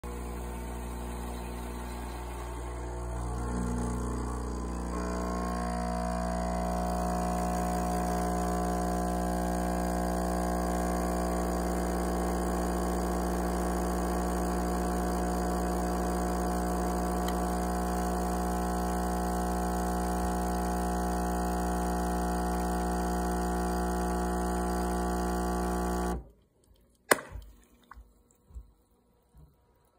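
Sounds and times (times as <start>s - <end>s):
espresso machine pump humming: 0.0s - 26.2s
coffee dripping: 11.2s - 26.1s
sharp click: 27.1s - 27.5s.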